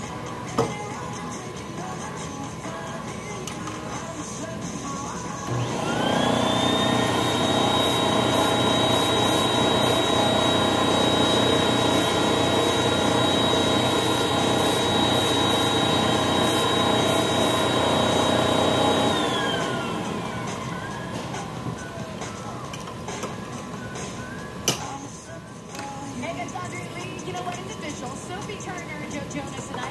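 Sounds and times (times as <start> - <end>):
vacuum motor whine: 5.4 - 24.6.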